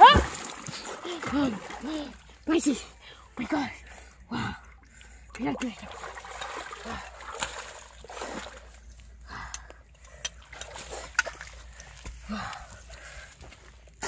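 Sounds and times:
water splashing and dripping: 0.0s - 2.7s, 4.7s - 12.7s.

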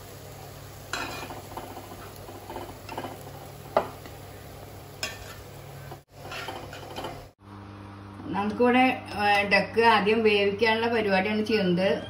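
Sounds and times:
metal ladle scraping a steel pot: 5.0s - 5.4s, 6.2s - 7.2s.

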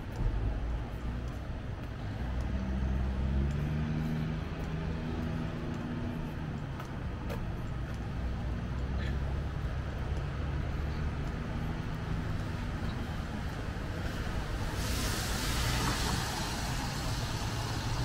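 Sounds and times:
traffic rumble: 0.0s - 18.0s
vehicle engine hum: 0.0s - 18.0s
rain hissing: 14.0s - 18.0s.

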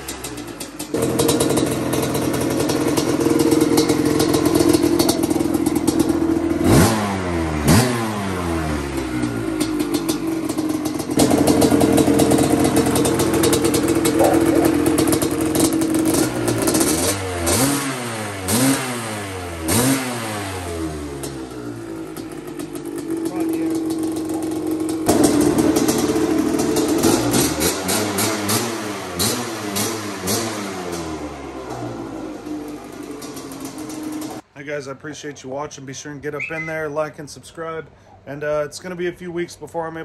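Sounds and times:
two-stroke engine idling: 0.0s - 17.7s, 20.6s - 34.4s
engine revving: 0.0s - 34.4s.

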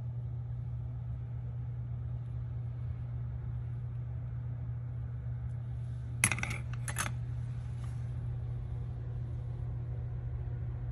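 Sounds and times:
steady low hum: 0.0s - 10.9s.

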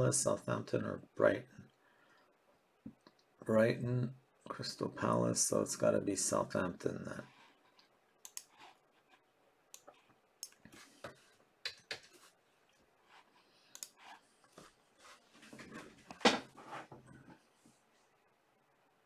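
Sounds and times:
computer mouse and keyboard clicks: 7.7s - 9.2s.

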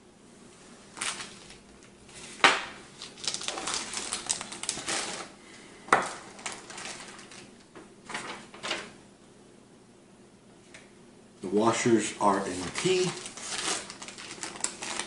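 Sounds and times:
plastic bags crinkling: 1.0s - 1.7s, 2.9s - 7.6s, 12.2s - 15.0s.

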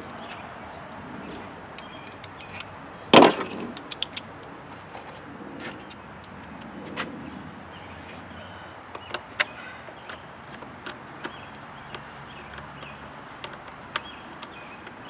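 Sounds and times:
sharp metallic clicks: 1.3s - 4.5s, 8.9s - 15.0s.

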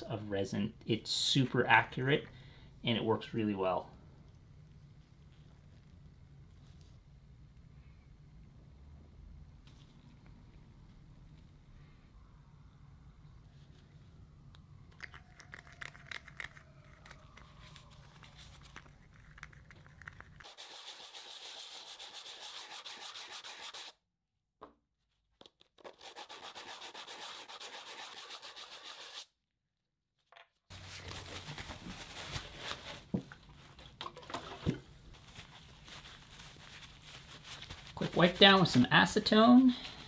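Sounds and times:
sandpaper rubbing on board: 20.4s - 24.0s, 25.9s - 29.3s.

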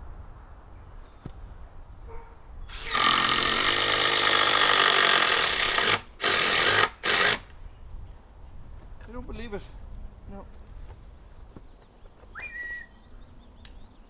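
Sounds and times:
impact driver driving screw into log: 2.7s - 7.5s.

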